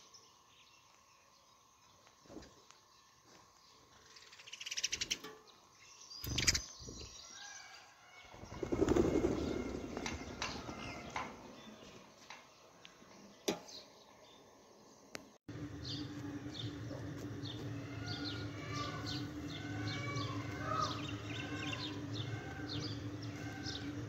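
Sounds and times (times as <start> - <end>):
birds' wings flapping: 8.3 - 11.5.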